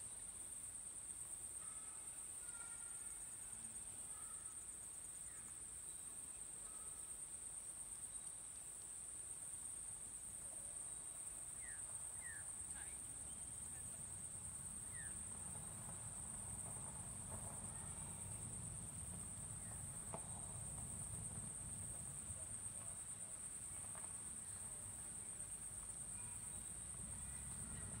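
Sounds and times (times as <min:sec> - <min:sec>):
insects trilling: 0:09.6 - 0:28.0.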